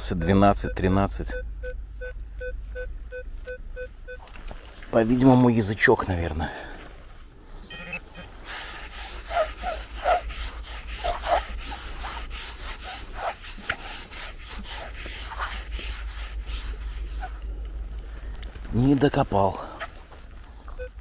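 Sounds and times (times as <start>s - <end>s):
hand shovel digging sand: 7.9s - 17.6s.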